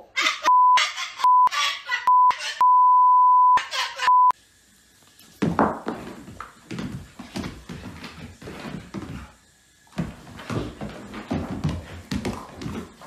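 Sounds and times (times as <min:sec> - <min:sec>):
cockatoo squawking: 0:00.0 - 0:02.6, 0:03.6 - 0:04.1
censor beeps: 0:00.5 - 0:01.5, 0:02.1 - 0:04.4.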